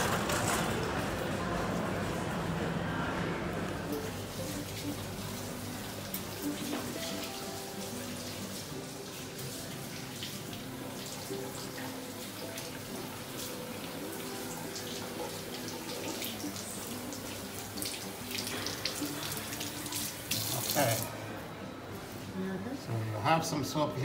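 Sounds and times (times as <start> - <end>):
tap water running into sink: 3.9 - 21.1.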